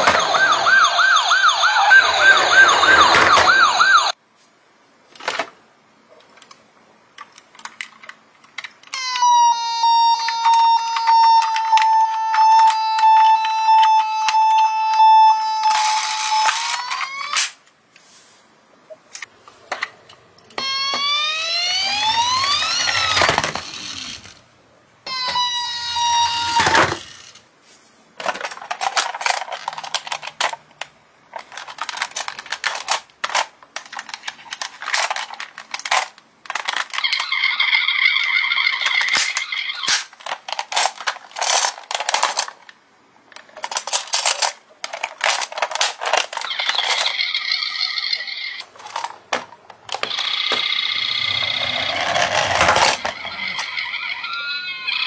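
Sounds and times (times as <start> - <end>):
toy electronic siren wailing: 0.0 - 4.2, 8.9 - 17.4, 20.6 - 24.3, 25.1 - 27.3, 36.9 - 40.0, 46.3 - 48.6, 49.9 - 55.0
plastic toy clicks and rattles: 7.2 - 9.2, 22.0 - 24.4, 28.2 - 42.8, 43.4 - 54.0.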